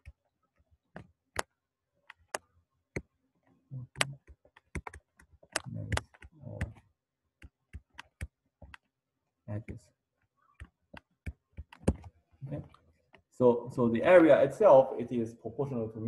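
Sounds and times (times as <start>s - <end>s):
stylus tapping on tablet: 0.9s - 3.1s, 3.9s - 9.0s, 10.5s - 13.3s.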